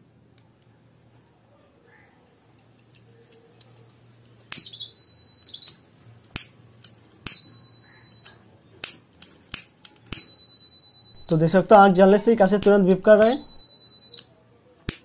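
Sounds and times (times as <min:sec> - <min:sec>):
piezo buzzer beeping: 0:04.6 - 0:05.8, 0:07.3 - 0:08.4, 0:10.2 - 0:11.5, 0:13.2 - 0:14.3
sharp clicks: 0:12.6 - 0:13.5.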